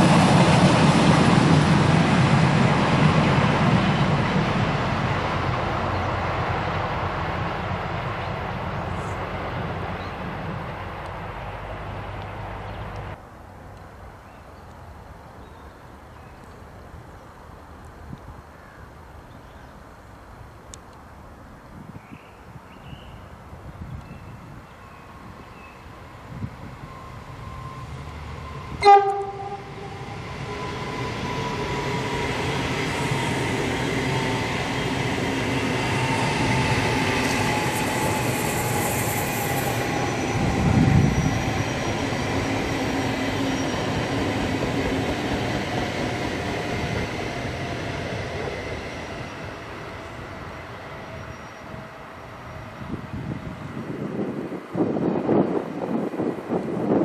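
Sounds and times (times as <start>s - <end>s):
train passing rumble: 0.0s - 14.3s, 23.2s - 57.0s
train horn blast: 28.7s - 30.0s.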